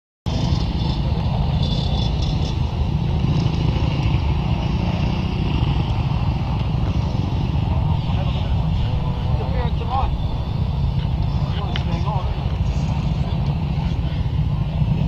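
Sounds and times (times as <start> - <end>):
motorcycle engine idling: 5.5 - 15.0.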